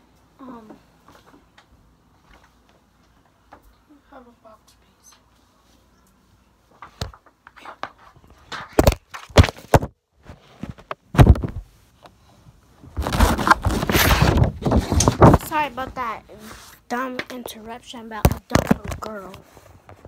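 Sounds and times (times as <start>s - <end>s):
knocks and bumps on microphone: 8.6s - 11.7s
rubbing against microphone: 12.8s - 16.9s.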